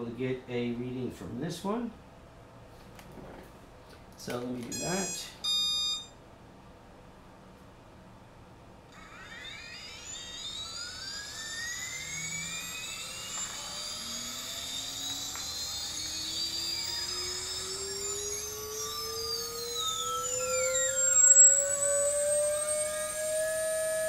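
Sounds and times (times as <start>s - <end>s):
drone motor whine rising in pitch: 4.8s - 6.1s, 8.9s - 24.0s.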